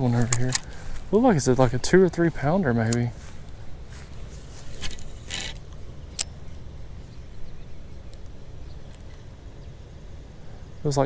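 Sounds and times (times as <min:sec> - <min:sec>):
reel gears turning: 0:04.7 - 0:06.3.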